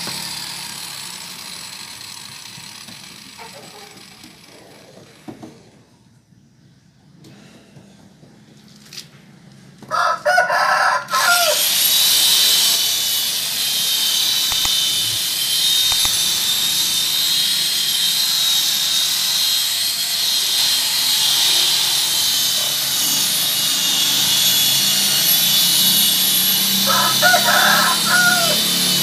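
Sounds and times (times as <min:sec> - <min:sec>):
electric polisher whine: 0:00.0 - 0:05.4, 0:11.5 - 0:29.0
rooster crowing: 0:09.9 - 0:11.6, 0:26.8 - 0:29.0.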